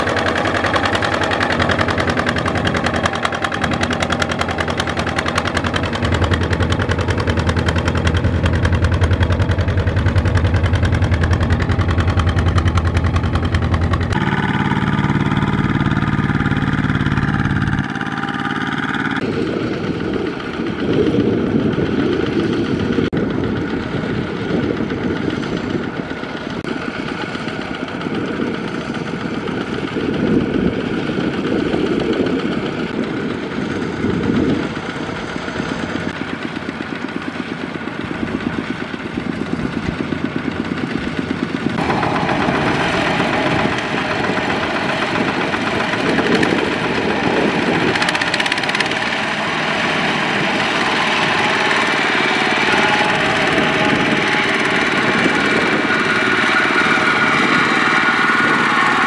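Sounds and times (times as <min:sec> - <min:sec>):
diesel engine chugging: 0:00.0 - 0:59.0.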